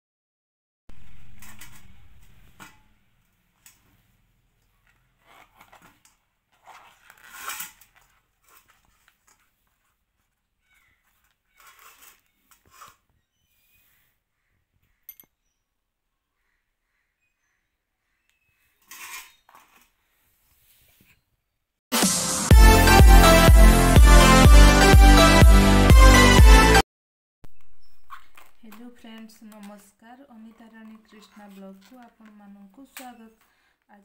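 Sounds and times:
papery bracts crackling: 0.9s - 13.3s.

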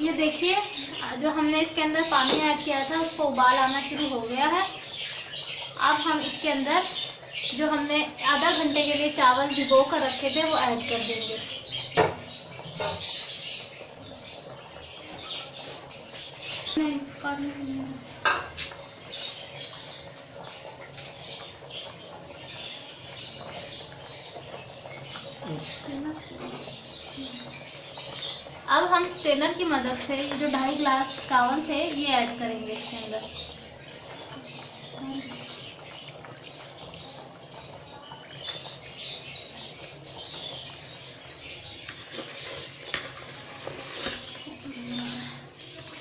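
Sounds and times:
stock boiling in metal pot: 0.0s - 46.0s
bubbling and popping: 17.8s - 43.5s.

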